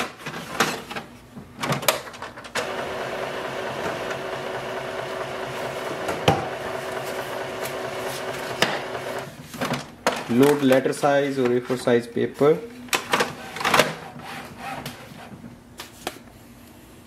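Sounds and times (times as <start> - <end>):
printer mechanism whirring: 2.5 - 9.4
printer clicks: 2.6 - 9.3.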